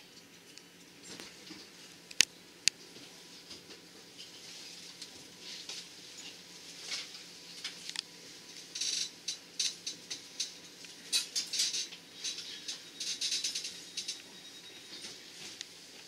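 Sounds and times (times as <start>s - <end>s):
faint steady hum: 0.0s - 16.0s
rattling and crackling in train carriage: 8.6s - 16.0s.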